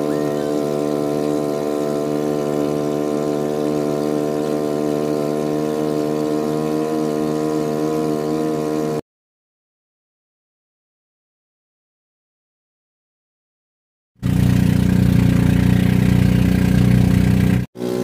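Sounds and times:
boat engine humming: 0.0 - 9.0, 14.2 - 18.0.

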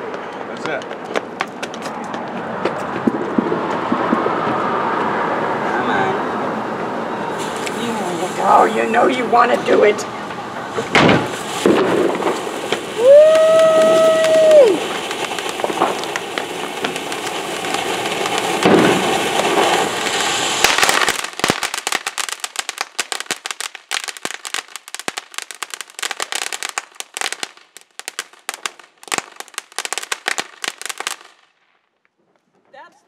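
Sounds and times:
rapid crackling pops: 0.6 - 5.2, 10.9 - 32.2
fireworks fountain spraying hiss: 0.9 - 31.4.

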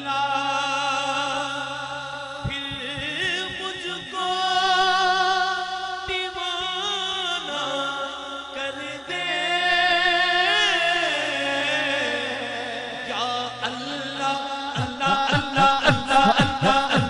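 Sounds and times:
low regular pulsing: 0.0 - 6.1
man singing with vibrato: 0.0 - 17.0
lower voice holding notes: 10.8 - 17.0.

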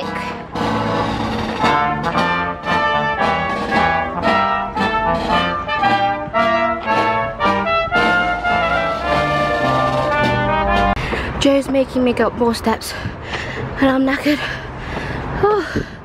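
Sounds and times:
brass band playing: 0.0 - 11.0.

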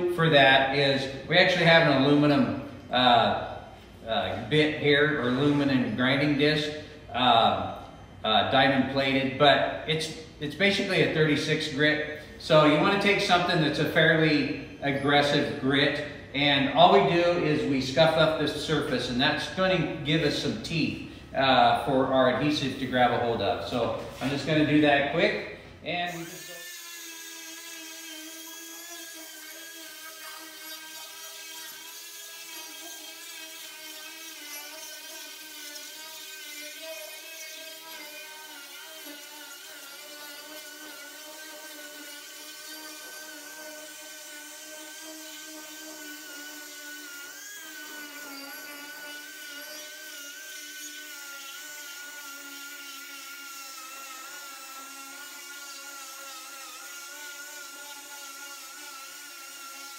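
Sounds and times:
pneumatic grinder whining: 26.1 - 59.9.

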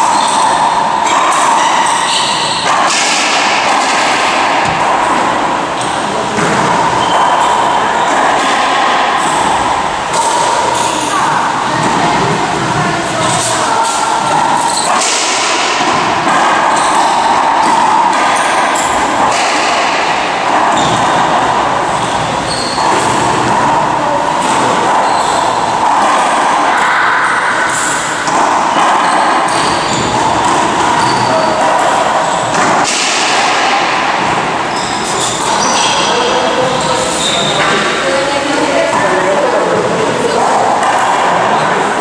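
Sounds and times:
racquetball hitting racquets and walls: 0.0 - 42.0.

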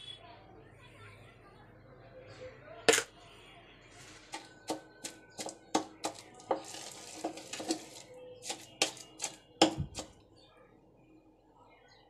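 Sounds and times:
wooden pestle pounding in mortar: 4.4 - 10.2.

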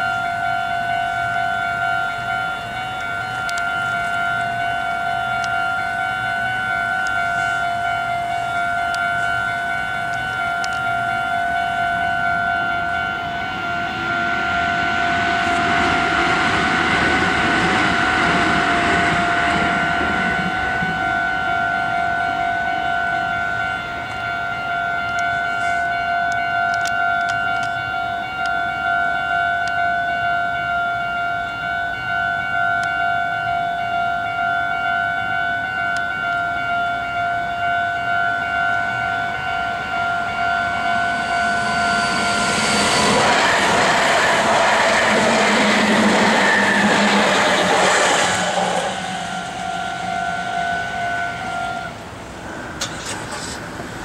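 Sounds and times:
level crossing bell ringing: 0.0 - 15.2, 20.5 - 46.4
electric train rumble: 0.0 - 54.0.

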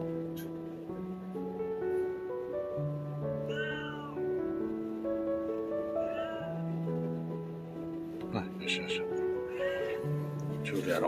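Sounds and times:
soft background music: 0.0 - 11.0
cat meow: 3.4 - 4.4, 6.0 - 6.6.

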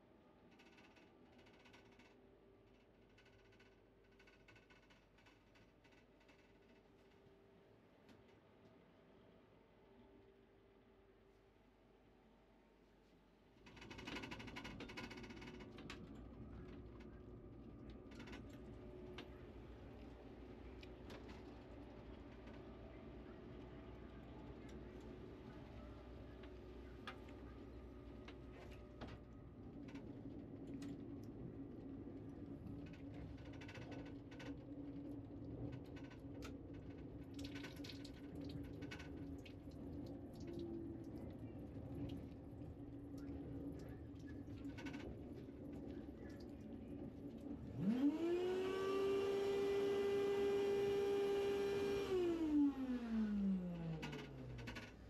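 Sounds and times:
steady low hum: 14.7 - 49.0
train low rumble: 14.8 - 37.4, 38.0 - 47.9.

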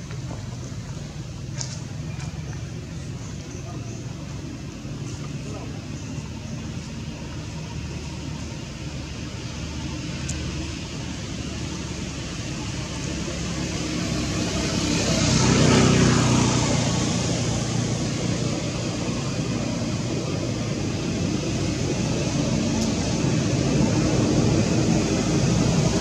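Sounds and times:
motor vehicle passing: 10.8 - 26.0.

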